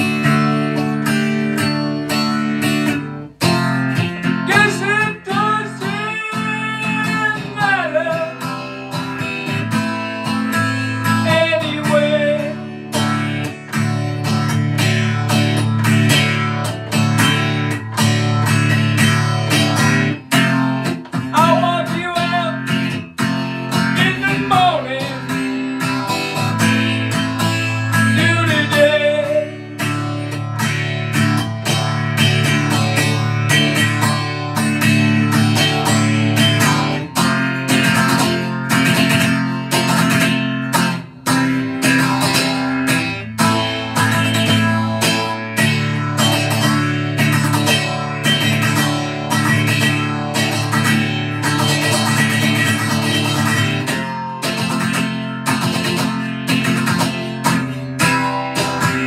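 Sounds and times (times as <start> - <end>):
acoustic guitar strumming: 0.0 - 59.0
man singing: 4.2 - 9.1, 11.0 - 13.5, 21.2 - 23.0, 23.6 - 25.7, 27.8 - 30.1.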